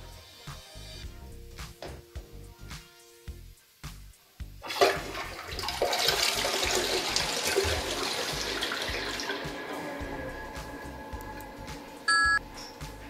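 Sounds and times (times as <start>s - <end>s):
toilet flushing: 4.6s - 12.1s.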